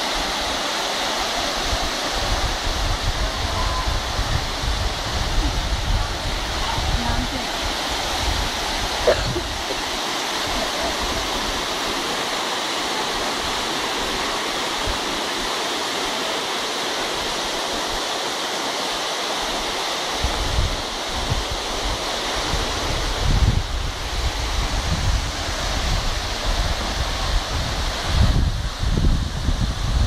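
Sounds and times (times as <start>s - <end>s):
waterfall roar: 0.0s - 30.0s
wind buffeting microphone: 1.7s - 9.8s, 20.2s - 30.0s.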